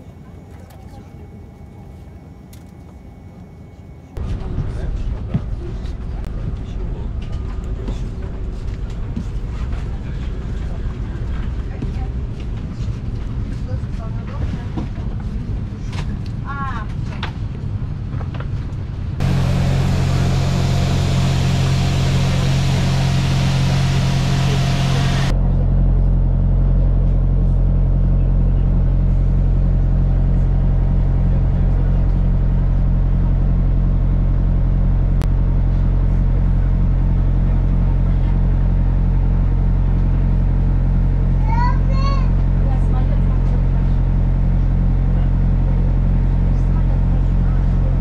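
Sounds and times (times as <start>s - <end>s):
bus engine idling: 19.2s - 25.3s
loud steady rushing noise: 19.2s - 25.4s.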